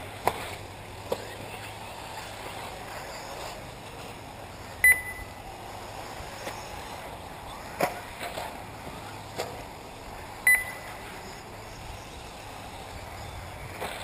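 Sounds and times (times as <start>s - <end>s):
rc cars swishing and knocking: 0.0s - 4.8s, 5.4s - 14.0s
outdoor background noise: 0.0s - 14.0s
short electronic beep: 4.8s - 5.4s, 10.5s - 11.0s.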